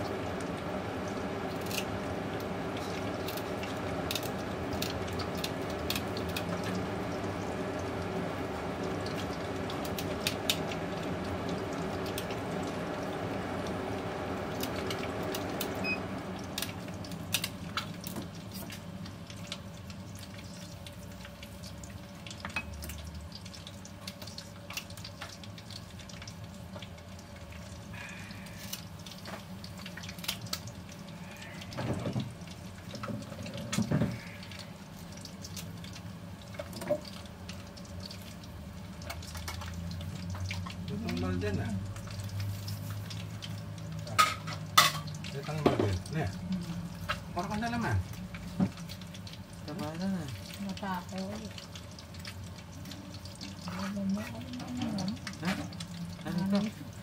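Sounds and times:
kitchen tap running: 0.0 - 57.0.

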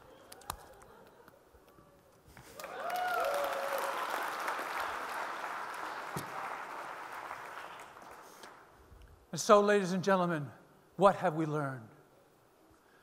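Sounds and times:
audience applauding: 2.4 - 8.7
short cheer: 2.6 - 4.2.

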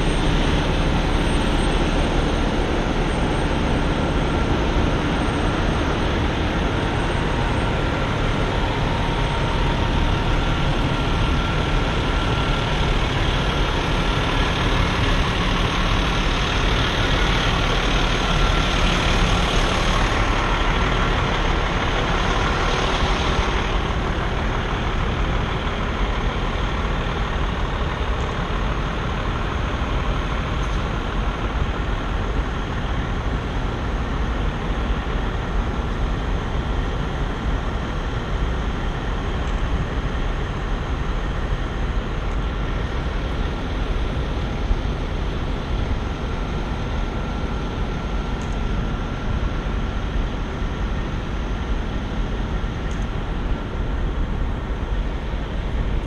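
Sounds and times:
diesel trucks idling: 0.0 - 56.0.

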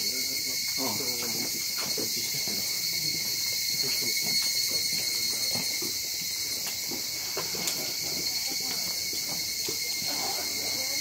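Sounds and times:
insects trilling: 0.0 - 11.0
faint voices: 6.9 - 11.0.

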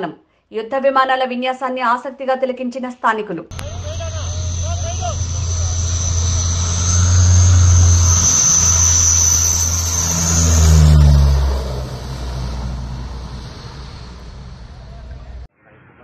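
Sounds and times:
propeller plane flying past: 3.5 - 15.5.

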